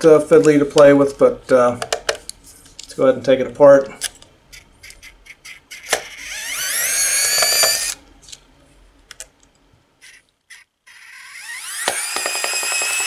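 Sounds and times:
electric screwdriver motor whine: 4.8s - 8.0s, 10.0s - 13.0s.

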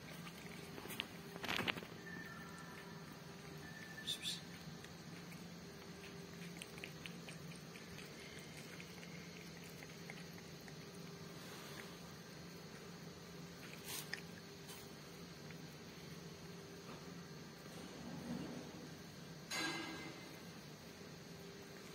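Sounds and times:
cat lapping liquid: 0.0s - 1.4s, 2.6s - 16.3s.

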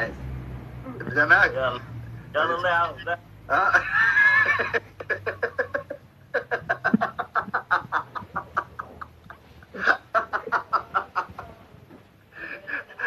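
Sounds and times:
man laughing hard: 3.5s - 11.6s, 12.4s - 13.0s.

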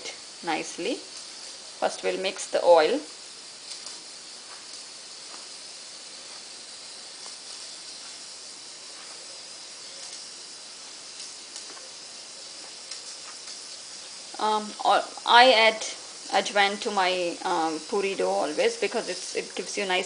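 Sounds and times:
steady high hiss: 0.0s - 20.0s.

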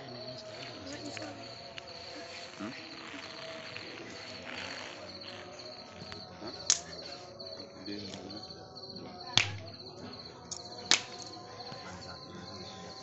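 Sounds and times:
crickets chirping: 0.0s - 13.0s
campfire wood popping: 6.0s - 7.1s, 9.4s - 9.7s, 10.5s - 11.2s.

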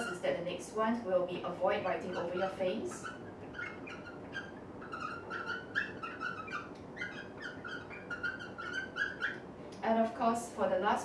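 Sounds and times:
marker squeaking on glass: 0.0s - 0.2s, 1.8s - 9.5s.

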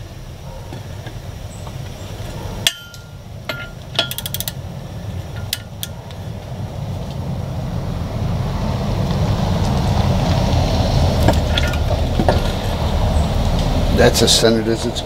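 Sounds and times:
metal clinks: 2.6s - 4.6s, 5.3s - 6.0s
ratchet wrench clicking: 2.7s - 4.6s.

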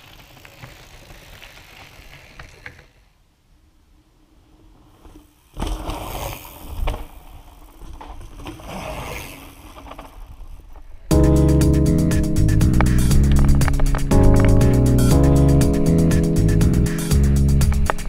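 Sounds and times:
bike tyres crunching over stones: 0.0s - 3.0s
loud background music: 11.1s - 18.0s.

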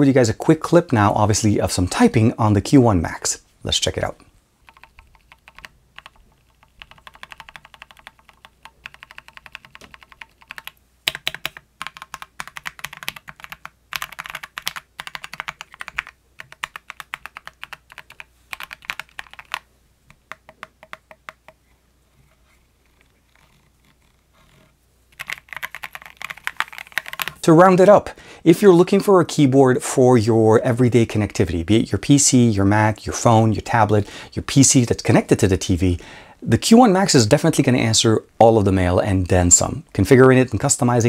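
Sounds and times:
mechanical keyboard typing: 4.6s - 21.6s, 25.2s - 27.4s.

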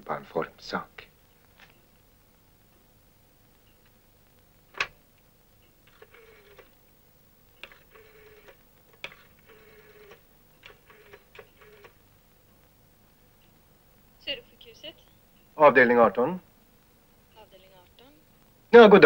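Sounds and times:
rotary dial whirring: 5.8s - 6.8s, 7.5s - 12.1s.

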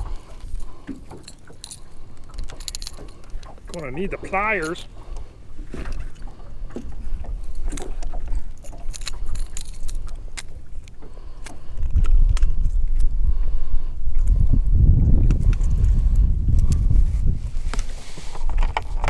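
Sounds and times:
metallic clicks and rattles: 1.1s - 3.7s, 7.8s - 10.5s.

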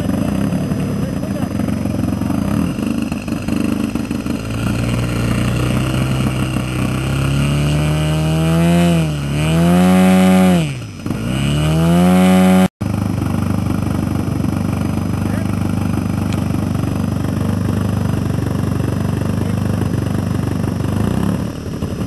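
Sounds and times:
model aircraft engine revving: 0.0s - 22.0s
steady engine noise: 0.0s - 22.0s.

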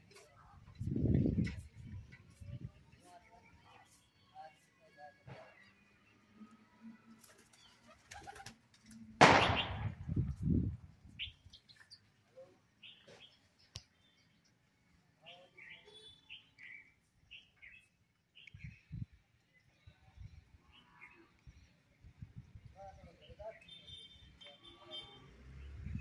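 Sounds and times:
pigeon wings flapping: 7.2s - 8.9s.

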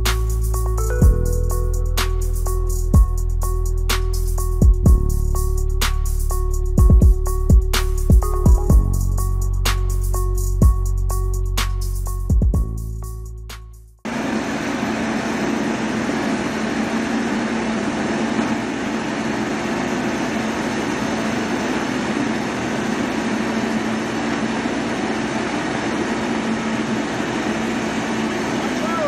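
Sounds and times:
diesel engine droning: 14.1s - 29.0s.

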